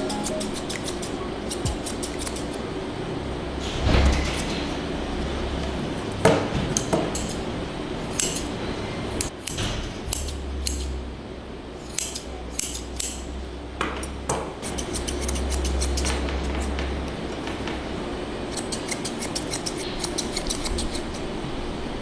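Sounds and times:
scissors snipping fur: 0:00.0 - 0:02.6, 0:06.8 - 0:07.4, 0:08.1 - 0:08.5, 0:09.2 - 0:10.9, 0:11.8 - 0:13.2, 0:14.6 - 0:16.4, 0:18.5 - 0:21.2
low hum: 0:07.4 - 0:19.0.

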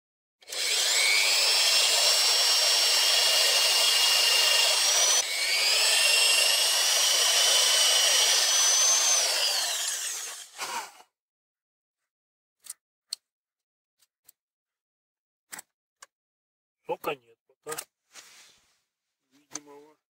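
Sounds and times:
electric drill boring into wood: 0:00.4 - 0:11.0.

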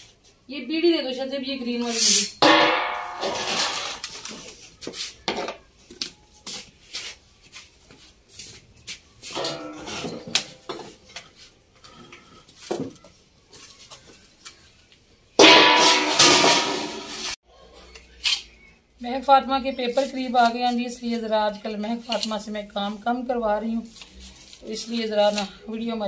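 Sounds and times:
steel dishes and utensils clinking: 0:09.3 - 0:12.4.

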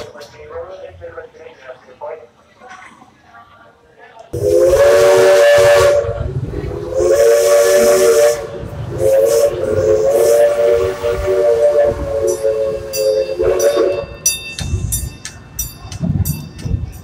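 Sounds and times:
steam locomotive whistle blasts: 0:04.4 - 0:14.3
steam hiss: 0:04.4 - 0:15.7
low rumble: 0:05.6 - 0:15.2.

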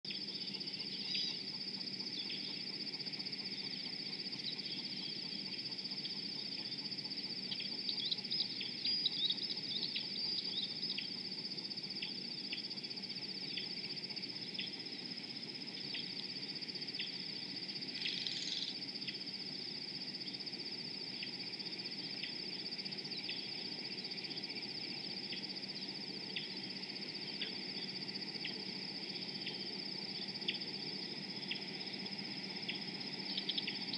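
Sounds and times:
high-pitched insect trill: 0:00.1 - 0:33.9
bird chirps: 0:00.3 - 0:01.4.

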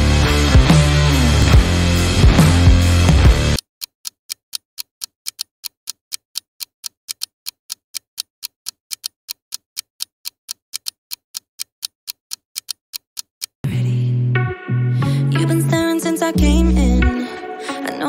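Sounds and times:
loud intro music: 0:00.0 - 0:03.6, 0:13.7 - 0:18.0
clock ticking: 0:03.6 - 0:13.6.

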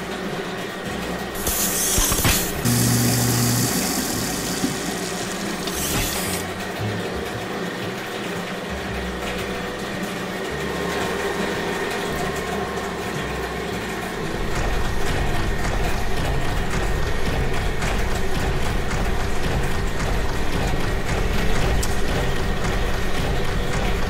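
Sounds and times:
bottling machine running: 0:00.0 - 0:24.0
hiss of liquid filling bottles: 0:01.4 - 0:06.5.

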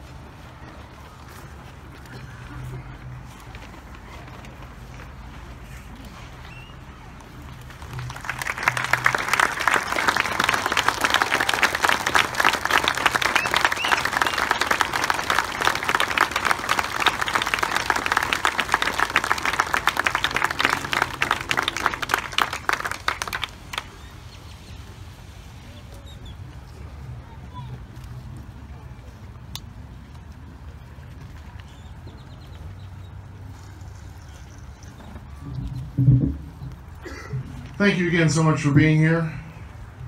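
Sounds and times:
large crowd applauding: 0:07.6 - 0:24.1.

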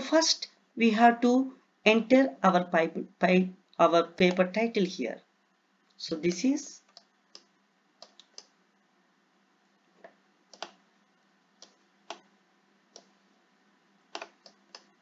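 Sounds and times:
computer mouse clicking: 0:06.9 - 0:08.5, 0:10.0 - 0:10.8, 0:11.6 - 0:12.3, 0:12.9 - 0:13.1, 0:14.1 - 0:15.0.

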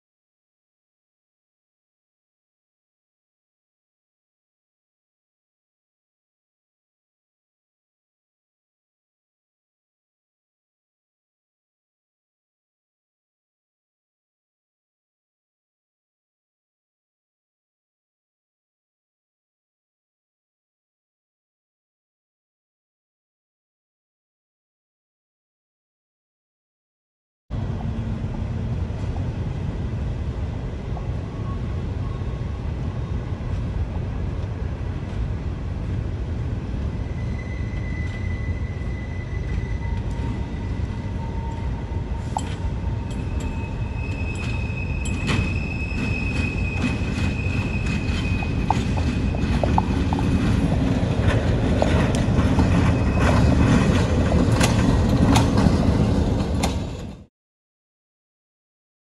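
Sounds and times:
diesel locomotive rumbling: 0:27.5 - 0:57.3
wheels squealing: 0:36.9 - 0:57.2
wheels clanking over rails: 0:41.3 - 0:57.2.

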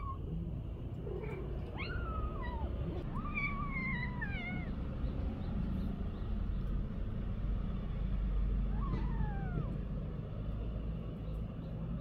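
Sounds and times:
cat meowing: 0:01.0 - 0:04.8, 0:08.7 - 0:09.8.

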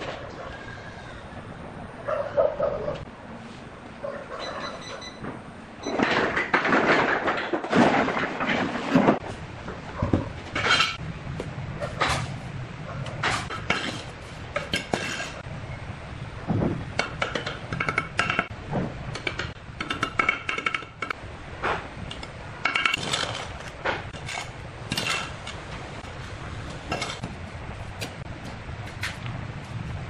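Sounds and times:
trowel scraping mortar: 0:13.2 - 0:15.4, 0:22.9 - 0:25.4.

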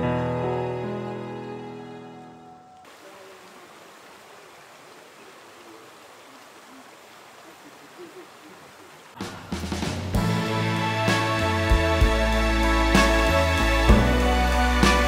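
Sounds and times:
background music: 0:00.0 - 0:02.8, 0:09.2 - 0:15.0
stream flowing: 0:01.4 - 0:11.4.

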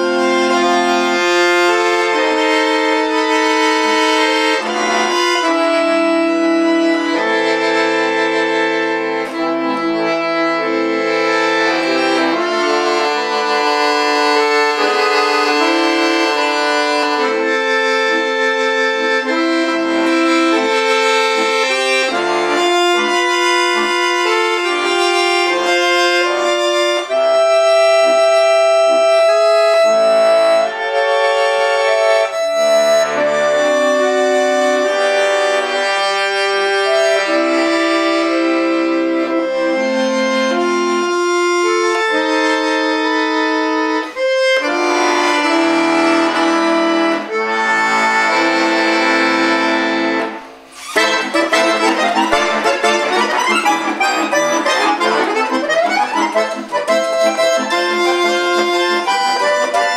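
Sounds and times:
button accordion melody: 0:00.0 - 0:59.9.

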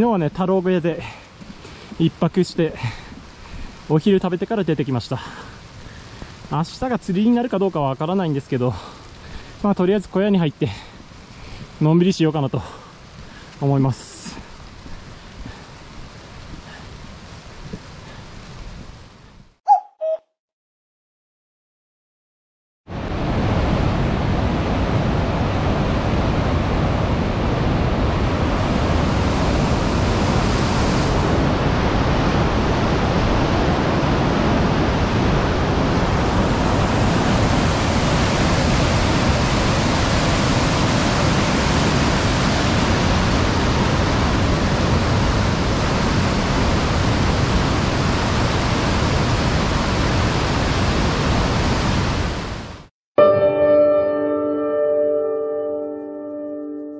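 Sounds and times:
river water rushing: 0:34.4 - 0:52.6.

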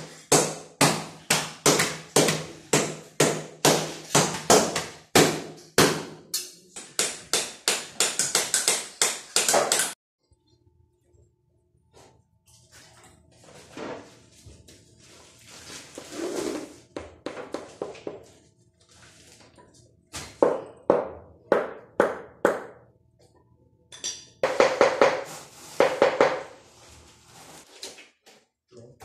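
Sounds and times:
scraping on tiles: 0:14.2 - 0:16.9.

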